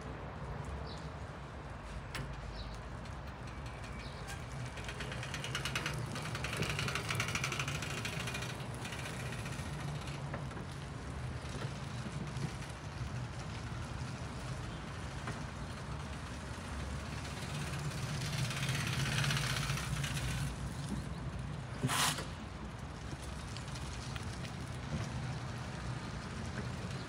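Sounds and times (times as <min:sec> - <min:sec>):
tyre hiss on wet asphalt: 0:21.8 - 0:22.4.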